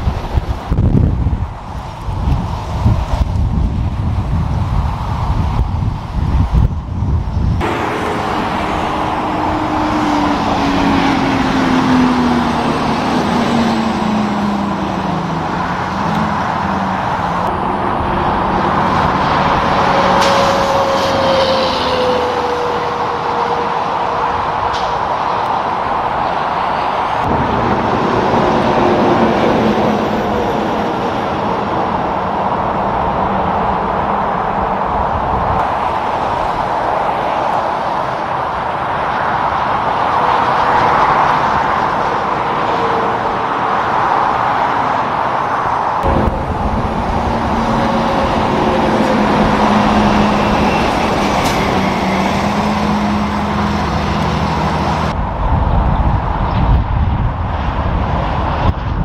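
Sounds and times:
truck engine drone passing: 0.0s - 59.0s
tyres roaring on the road: 0.0s - 59.0s.

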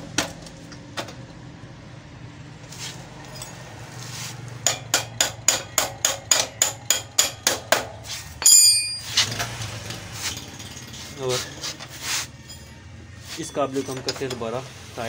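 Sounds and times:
hammer tapping on metal: 4.6s - 9.2s
ringing metal clang: 8.4s - 9.4s.

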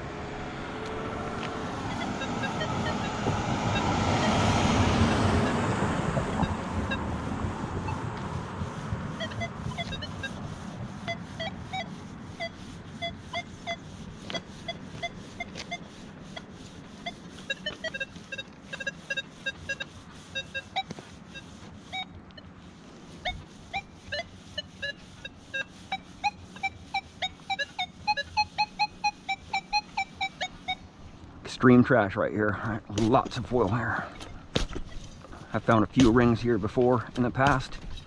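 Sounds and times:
metal detector beeping: 1.7s - 22.5s, 23.1s - 30.9s.

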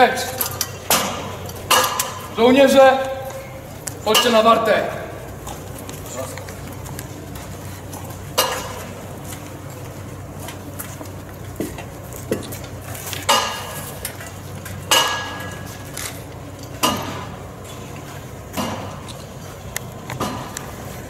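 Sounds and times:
metallic clanks and knocks: 0.2s - 2.4s.

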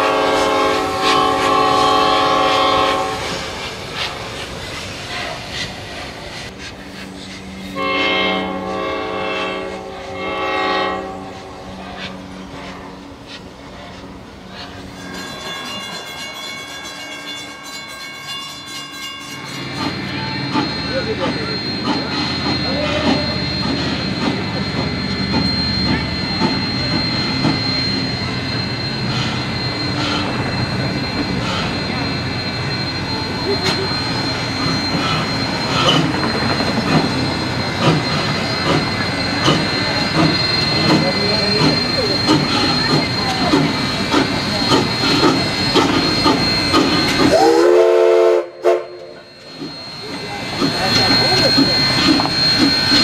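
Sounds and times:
steam whistle blowing: 0.0s - 3.6s, 7.6s - 13.0s, 37.2s - 50.6s
steam locomotive hissing and clattering: 0.0s - 53.0s
train rumbling on rails: 0.0s - 53.0s
thin high whine: 6.8s - 53.0s.

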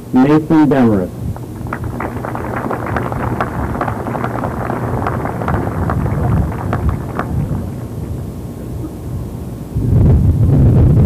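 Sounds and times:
wind rumble on microphone: 1.2s - 11.0s
audience applauding: 1.4s - 8.5s.

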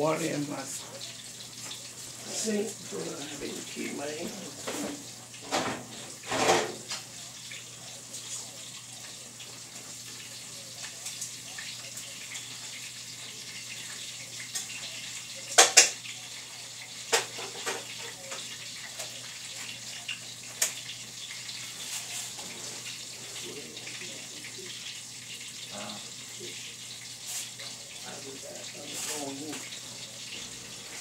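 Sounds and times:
fish frying in hot grease: 0.0s - 31.0s.

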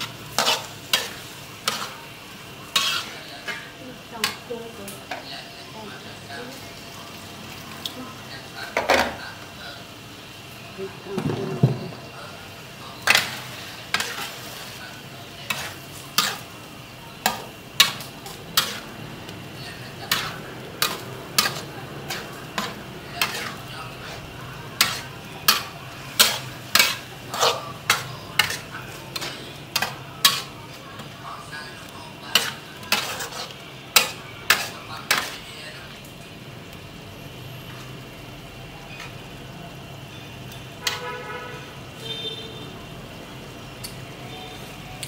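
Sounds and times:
metal spatula scraping a wok: 0.0s - 4.5s, 13.0s - 16.5s, 17.2s - 31.5s, 32.2s - 35.6s, 40.8s - 41.7s
low frying sizzle: 0.0s - 45.0s.

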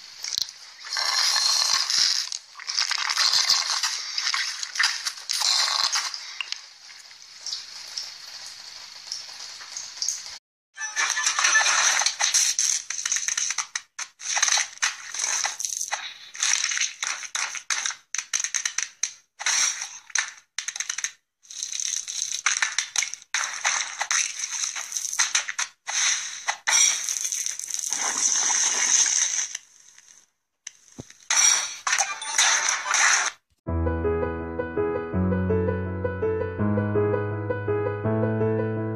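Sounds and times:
food being crushed: 0.3s - 6.6s, 11.1s - 29.6s.

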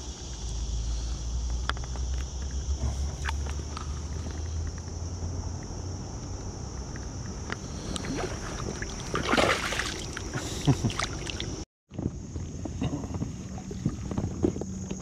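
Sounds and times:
steady high-pitched hiss: 0.0s - 15.0s
water splashing: 7.8s - 11.6s
inflatable boat knocking and sloshing: 8.1s - 12.1s.

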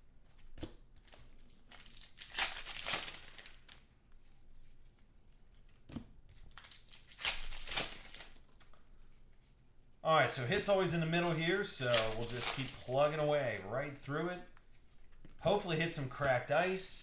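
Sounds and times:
foil wrappers crinkling and tearing: 1.0s - 3.9s, 6.4s - 8.7s, 10.3s - 13.6s.

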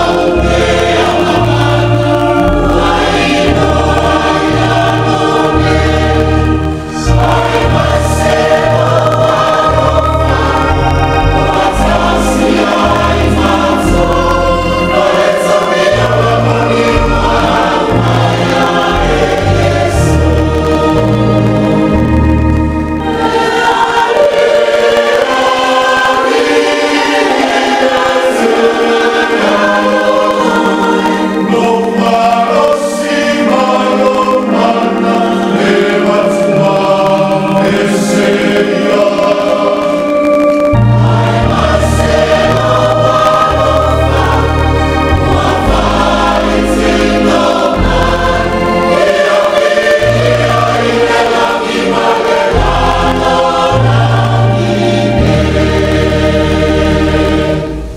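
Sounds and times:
deep bass voices: 0.0s - 24.5s, 40.1s - 57.9s
choir singing a hymn: 0.0s - 57.9s.

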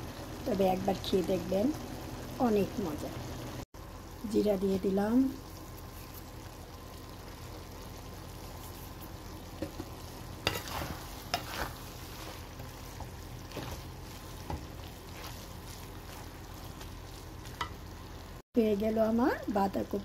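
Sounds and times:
food stirred in pot sizzling: 0.0s - 20.0s
utensil scraping and knocking pot: 9.6s - 17.8s.

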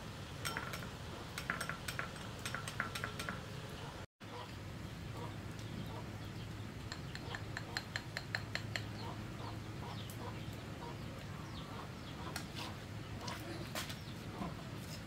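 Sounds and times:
chickens clucking and chirping: 5.2s - 14.8s.

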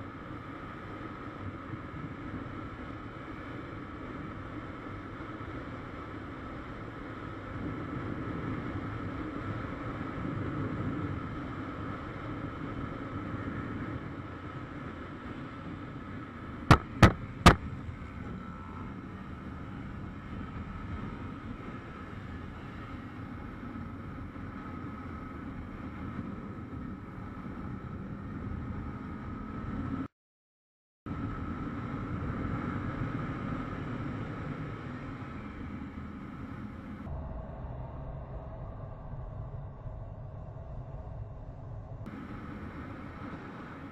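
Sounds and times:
road and wind noise: 0.0s - 30.1s, 31.1s - 43.9s
motorcycle engine running: 16.7s - 21.7s.

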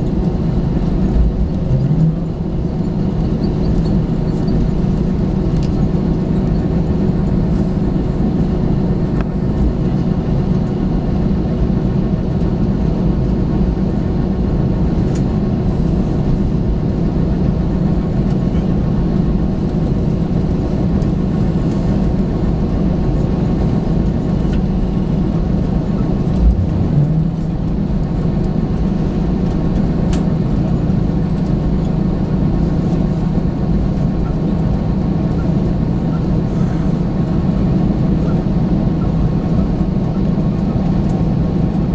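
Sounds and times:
airplane cabin engine drone: 0.0s - 41.9s
low thump: 26.4s - 27.5s.

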